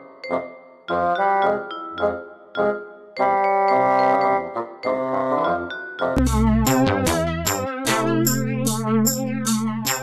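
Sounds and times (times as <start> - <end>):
background music with steady beat: 6.1 - 10.0.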